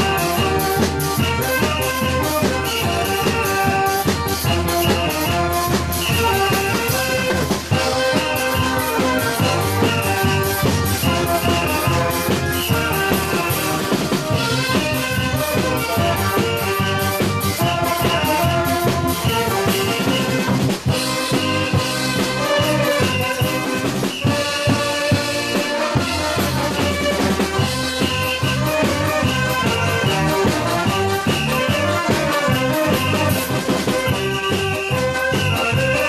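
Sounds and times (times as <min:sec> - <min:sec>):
saxophones playing melody: 0:00.0 - 0:36.0
steady drum beat: 0:00.0 - 0:36.0.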